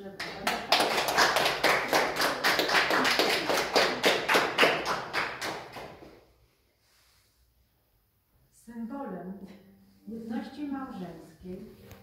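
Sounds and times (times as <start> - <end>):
people applauding: 0.2 - 6.1.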